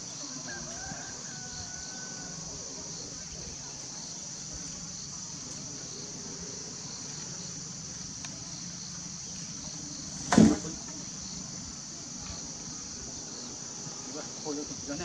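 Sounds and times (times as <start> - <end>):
insects chirring: 0.0 - 15.0.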